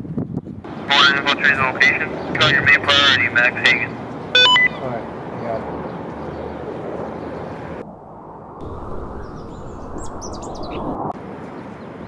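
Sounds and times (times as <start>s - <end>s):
outdoor background noise: 0.0s - 12.0s
bird chirps: 9.0s - 11.0s.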